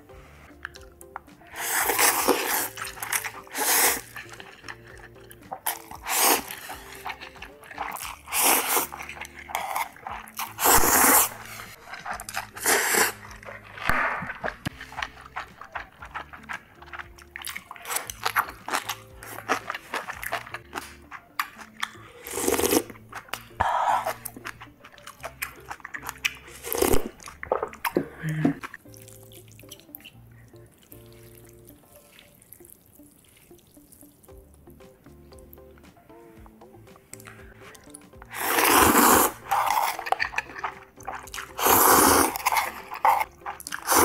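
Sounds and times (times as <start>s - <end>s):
wet chewing: 0.5s - 34.5s, 35.3s - 44.0s
slurping noodles: 1.4s - 29.1s, 37.1s - 44.0s.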